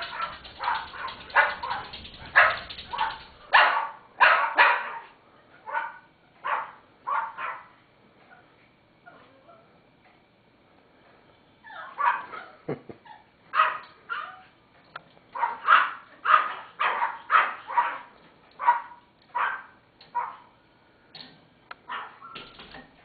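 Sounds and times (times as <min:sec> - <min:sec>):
dogs barking: 0:00.0 - 0:07.8, 0:11.7 - 0:12.7, 0:13.5 - 0:14.5, 0:15.3 - 0:20.5, 0:21.8 - 0:22.3.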